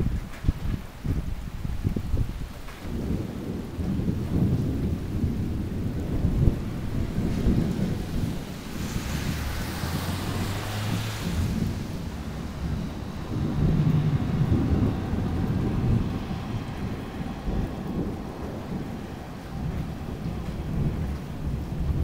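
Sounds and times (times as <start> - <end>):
thunder rumbling: 0.0 - 22.0
hiss: 8.6 - 12.0.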